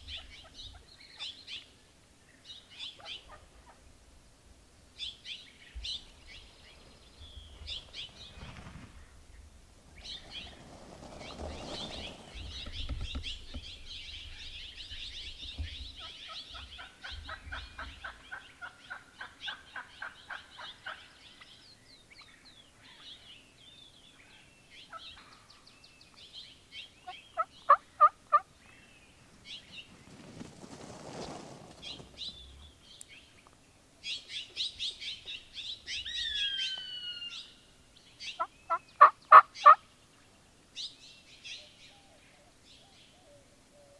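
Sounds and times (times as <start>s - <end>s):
small birds chirping: 0.0s - 3.8s, 4.9s - 43.9s
wild turkeys calling: 15.9s - 21.5s, 27.0s - 28.6s, 35.8s - 37.6s, 38.2s - 39.8s.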